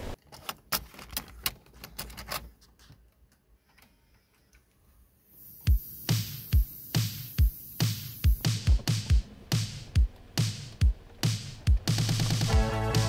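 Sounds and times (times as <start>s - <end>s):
music with heavy low beat: 5.7s - 13.0s.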